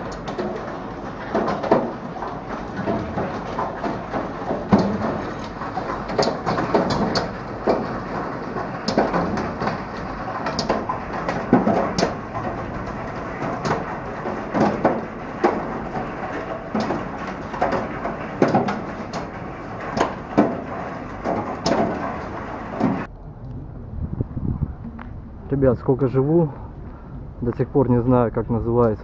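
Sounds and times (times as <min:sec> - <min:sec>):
hail ticking on metal roof: 0:00.0 - 0:23.1.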